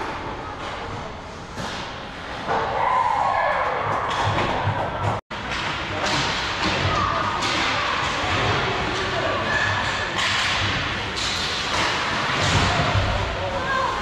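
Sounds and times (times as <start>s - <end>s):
sticks and puck clacking: 3.7s - 13.9s.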